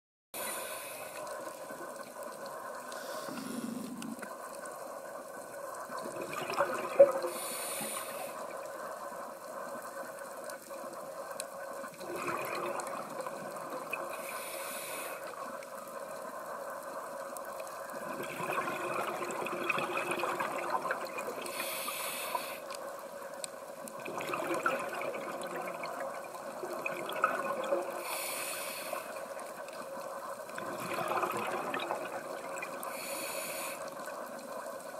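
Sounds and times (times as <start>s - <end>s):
regulator inhale hiss: 0.4s - 1.6s, 2.8s - 4.4s, 7.2s - 8.7s, 14.0s - 15.7s, 21.4s - 23.0s, 28.0s - 29.6s, 32.8s - 34.4s.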